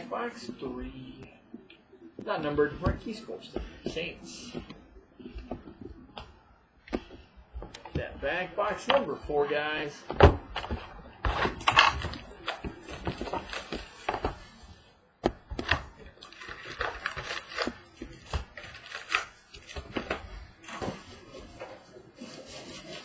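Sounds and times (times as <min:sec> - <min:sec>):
cardboard rustles and scrapes: 0:16.3 - 0:23.0.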